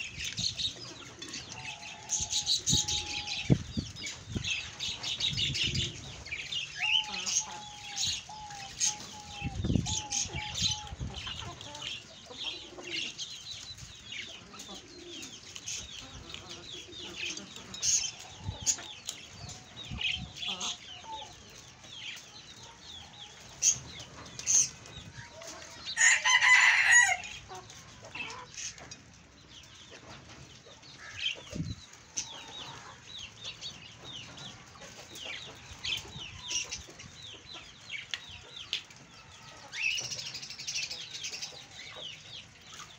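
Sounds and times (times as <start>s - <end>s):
chickens clucking: 0.0s - 42.9s
loud chicken call: 26.0s - 27.3s.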